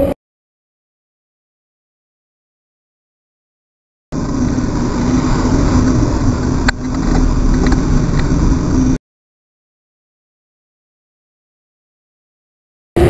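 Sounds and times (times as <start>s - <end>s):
bicycle riding rumble: 4.2s - 9.0s.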